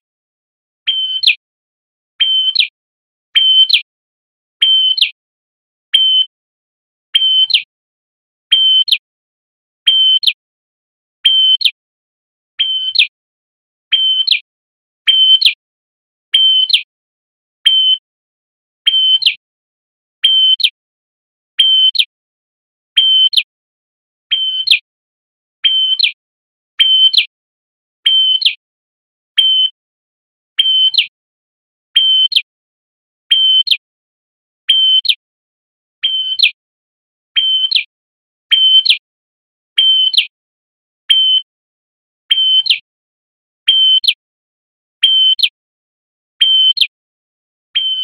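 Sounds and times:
bird calling high whistles: 0.8s - 1.4s, 2.2s - 2.7s, 3.4s - 3.8s, 4.6s - 5.2s, 5.9s - 6.4s, 13.9s - 14.4s, 15.0s - 15.6s, 17.6s - 18.1s, 26.8s - 27.3s, 29.4s - 29.8s, 38.5s - 39.0s, 41.1s - 41.5s
bird singing whistled phrases: 0.8s - 1.4s, 2.2s - 2.7s, 3.3s - 3.9s, 4.6s - 5.2s, 5.9s - 6.4s, 7.1s - 7.7s, 8.5s - 9.0s, 9.8s - 10.4s, 11.2s - 11.8s, 12.6s - 13.1s, 13.9s - 14.4s, 15.0s - 15.6s, 16.3s - 16.9s, 17.6s - 18.1s, 18.8s - 19.4s, 20.2s - 20.8s, 21.6s - 22.1s, 23.0s - 23.5s, 24.3s - 24.8s, 25.6s - 26.2s, 26.8s - 27.3s, 28.0s - 28.6s, 29.3s - 29.8s, 30.6s - 31.1s, 31.9s - 32.5s, 33.3s - 33.8s, 34.7s - 35.2s, 36.0s - 36.6s, 37.4s - 37.9s, 38.5s - 39.0s, 39.8s - 40.3s, 41.0s - 41.6s, 42.3s - 42.8s, 43.6s - 44.2s, 45.0s - 45.6s, 46.4s - 46.9s, 47.8s - 48.0s.

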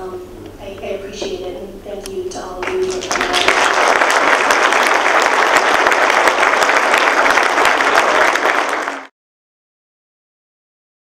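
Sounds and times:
audience applauding: 2.6s - 9.1s.

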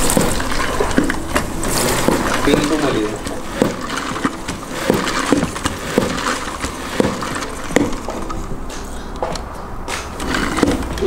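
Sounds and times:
water hissing off spinning mop: 0.0s - 8.4s.

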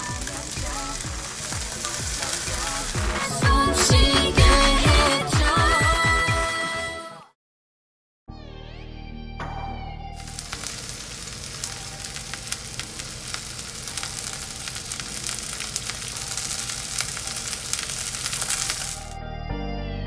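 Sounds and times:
meat sizzling in a frying pan: 0.0s - 3.4s, 10.2s - 19.2s.

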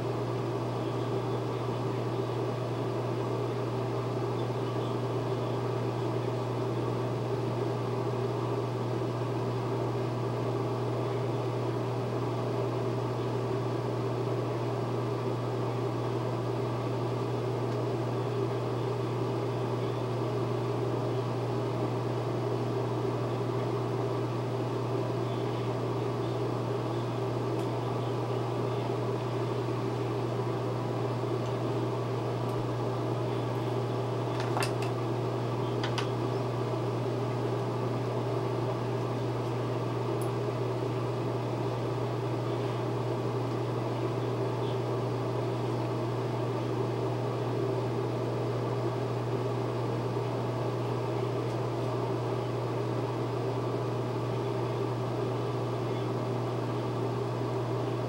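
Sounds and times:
ventilation fan humming: 0.0s - 58.0s.

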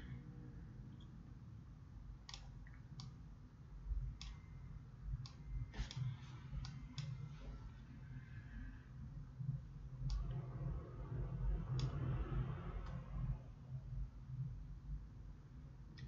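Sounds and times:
steady low hum: 0.0s - 16.0s
computer mouse clicks: 2.2s - 3.2s, 4.2s - 4.4s, 11.7s - 12.2s.

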